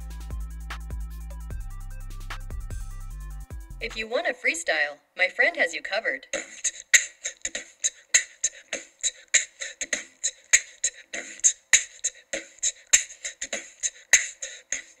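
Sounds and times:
beatboxing from small speaker: 6.2s - 15.0s.

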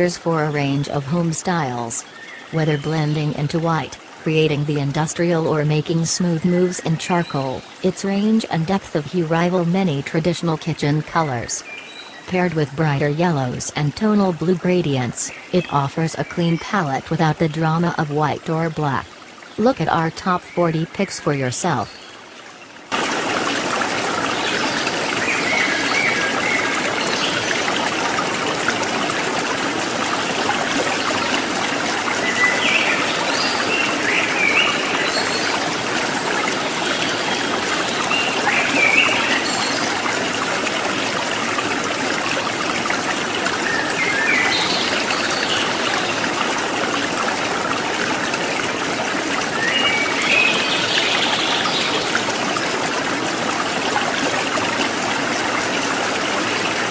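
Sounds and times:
stream running water: 0.0s - 56.9s.

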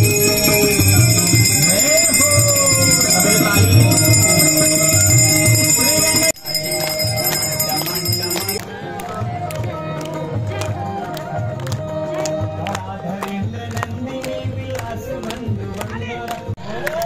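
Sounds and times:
bells ringing: 0.0s - 8.6s
devotional music with drum beat: 0.0s - 17.0s.

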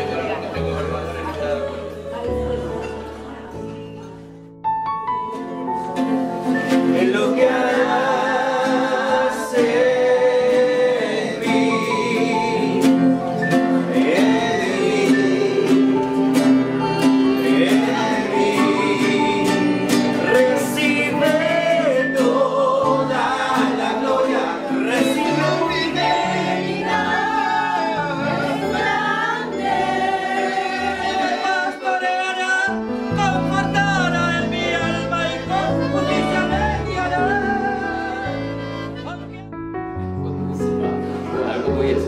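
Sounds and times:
instrumental accompaniment: 0.0s - 42.0s
group singing a worship song: 6.6s - 32.9s, 41.2s - 42.0s.

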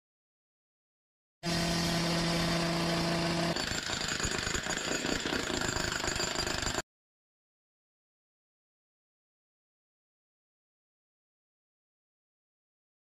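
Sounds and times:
power tool running: 1.4s - 6.8s.

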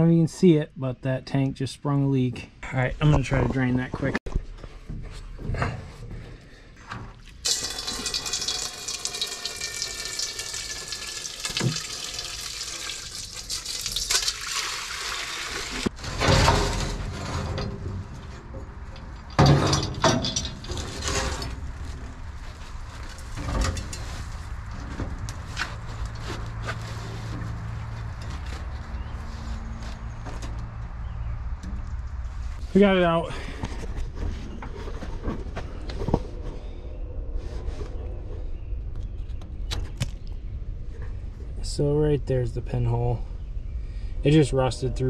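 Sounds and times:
fuel pouring into metal pan: 7.4s - 17.0s
metal tank clanking: 15.8s - 22.2s.

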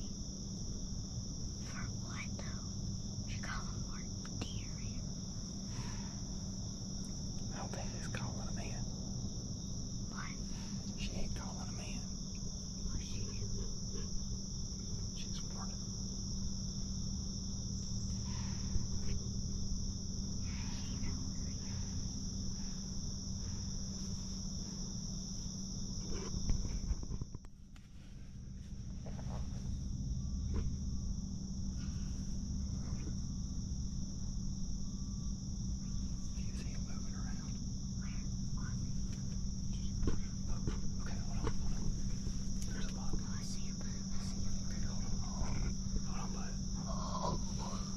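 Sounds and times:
insects chorus: 0.0s - 47.9s
faint knocks and rustles: 26.0s - 29.8s.

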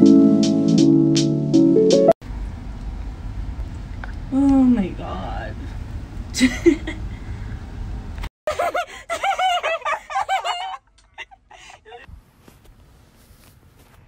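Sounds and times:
person giggling: 6.4s - 7.1s, 8.5s - 12.1s.

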